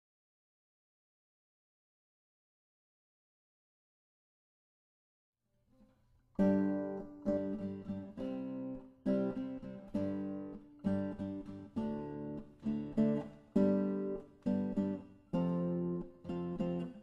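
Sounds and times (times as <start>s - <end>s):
acoustic guitar chords: 6.4s - 17.0s.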